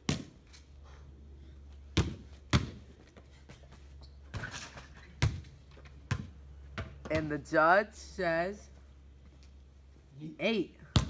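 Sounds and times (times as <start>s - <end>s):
basketball bouncing: 0.0s - 0.4s, 1.9s - 3.0s, 4.3s - 7.4s.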